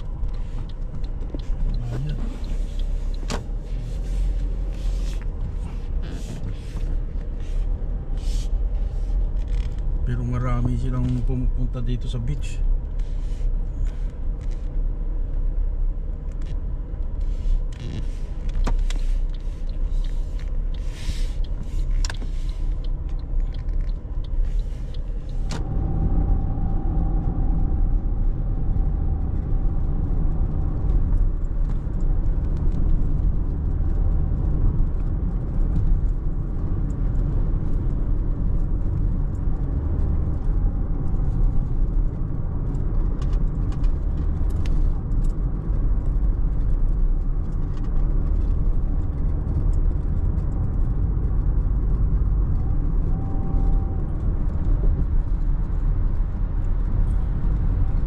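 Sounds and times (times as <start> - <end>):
car engine and road rumble: 0.0 - 58.0
light clicks and rattles: 16.1 - 58.0.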